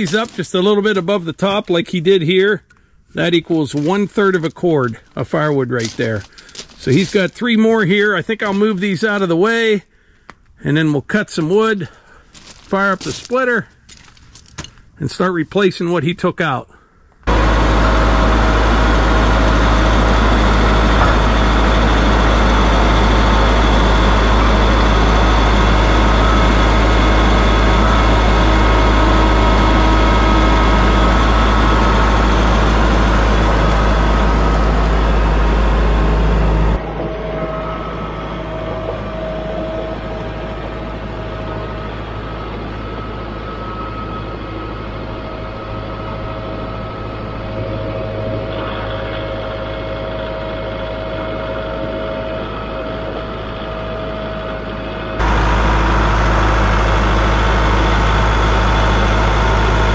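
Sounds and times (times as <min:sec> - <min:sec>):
tractor diesel engine running: 0:00.0 - 0:15.6, 0:16.9 - 0:59.9
tractor driving on gravel: 0:00.0 - 0:16.6, 0:17.2 - 0:59.9.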